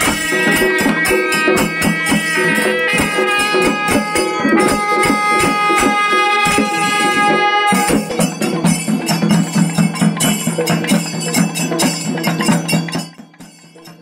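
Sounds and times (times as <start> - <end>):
brass horns holding a note: 0.0 - 8.2
percussion ensemble fast beat: 0.0 - 14.0.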